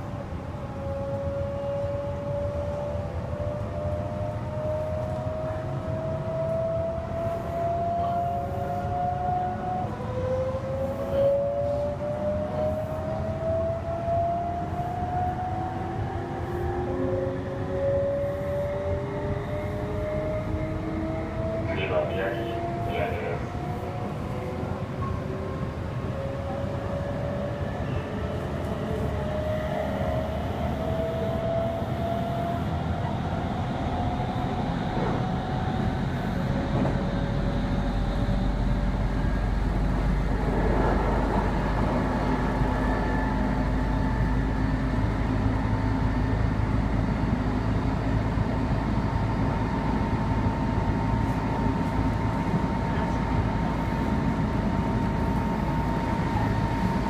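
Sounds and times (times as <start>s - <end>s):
deep rumble: 32.8s - 47.3s.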